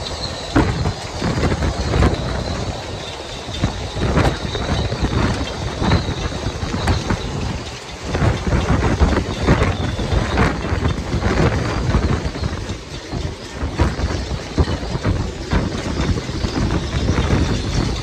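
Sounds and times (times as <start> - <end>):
strong wind buffeting microphone: 0.0 - 18.0.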